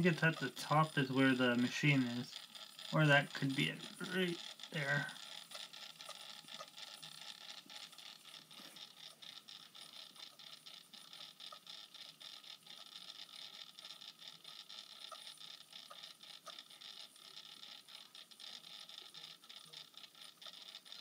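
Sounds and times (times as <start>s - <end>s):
light ticking: 0.0s - 21.0s
small motor whirring: 0.0s - 21.0s.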